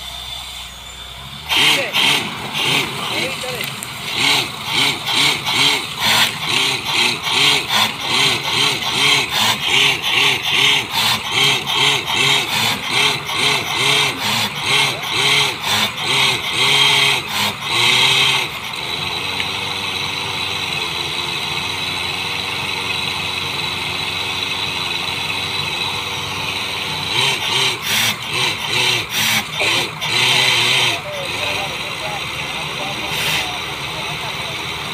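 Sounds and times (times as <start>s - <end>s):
drilling rig pulsing with hiss: 0.0s - 34.9s.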